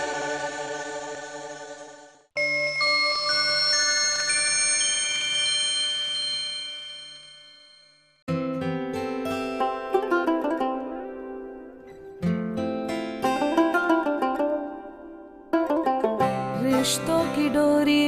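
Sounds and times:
high ringing notes: 0:02.4 - 0:08.3
music with quick plucked notes: 0:08.3 - 0:18.0.

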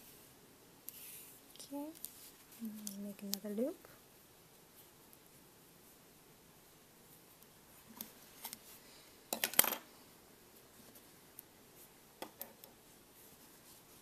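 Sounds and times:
tools clattering on table: 0:09.3 - 0:09.9.

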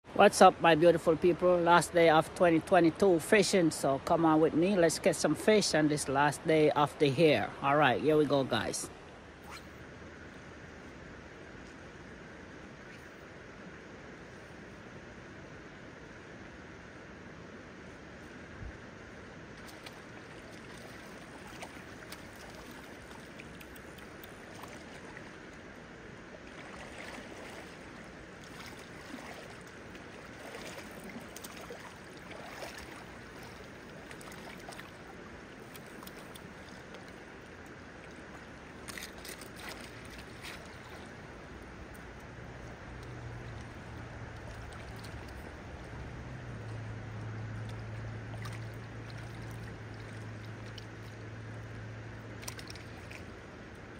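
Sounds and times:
river flowing over stones: 0:00.1 - 0:53.9
low hum: 0:06.9 - 0:53.9
water splashes: 0:17.9 - 0:53.9.

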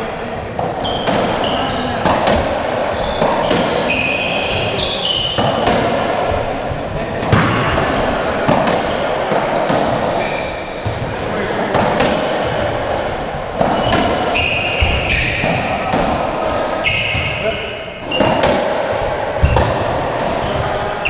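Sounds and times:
ball hitting rackets and walls: 0:00.4 - 0:21.0
shoes squeaking on wooden floor: 0:02.9 - 0:05.6, 0:10.1 - 0:11.0, 0:13.7 - 0:15.4.

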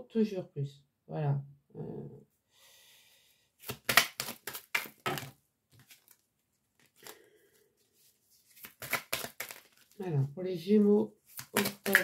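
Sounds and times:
cards being shuffled: 0:03.6 - 0:10.0, 0:11.2 - 0:12.0.

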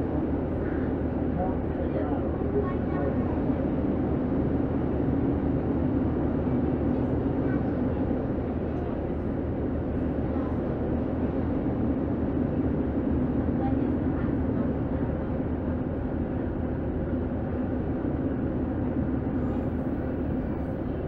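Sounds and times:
train running noise from inside: 0:00.0 - 0:21.0.

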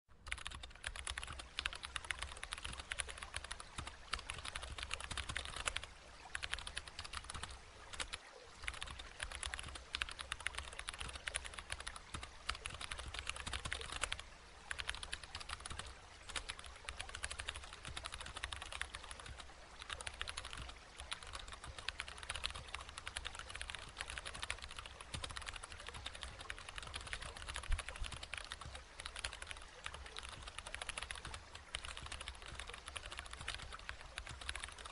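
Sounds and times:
keyboard typing: 0:00.2 - 0:34.9.

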